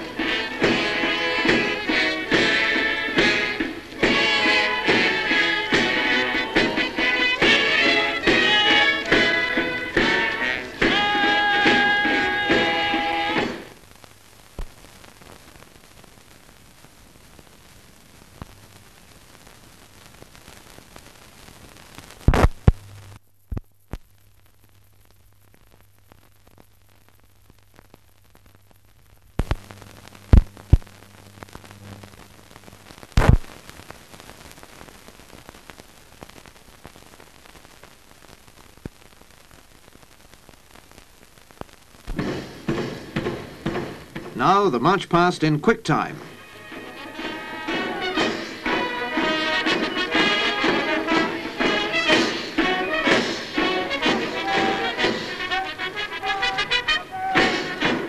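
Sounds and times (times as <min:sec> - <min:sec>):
film soundtrack hiss: 0:00.0 - 0:58.0
sharp clicks and pops: 0:13.8 - 0:16.0, 0:18.3 - 0:46.3.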